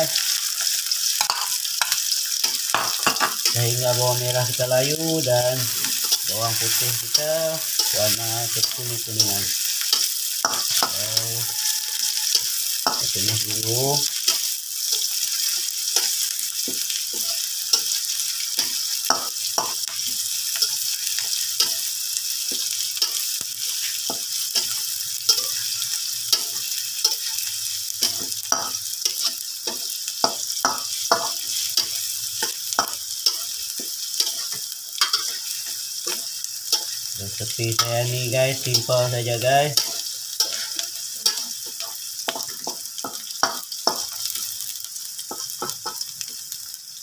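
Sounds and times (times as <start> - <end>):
food sizzling in hot oil: 0.0 - 47.0
metal spatula scraping wok: 5.6 - 16.2, 22.5 - 42.8.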